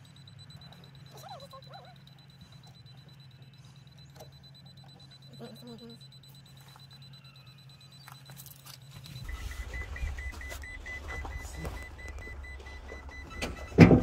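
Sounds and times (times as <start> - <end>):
faint hum: 0.0 - 14.0
high electronic beeps: 0.0 - 14.0
low steady rumble: 9.0 - 14.0.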